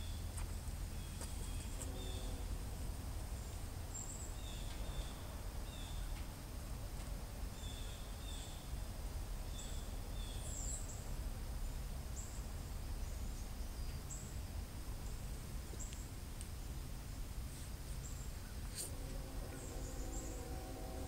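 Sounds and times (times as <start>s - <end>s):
steady low rumble: 0.0s - 7.6s, 10.8s - 21.0s.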